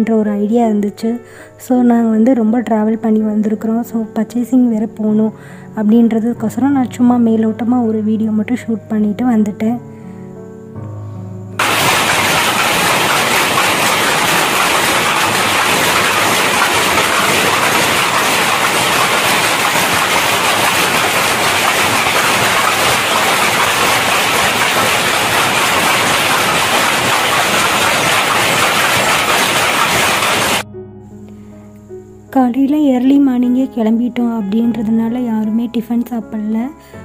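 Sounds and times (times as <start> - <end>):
power looms clattering: 11.6 - 30.6.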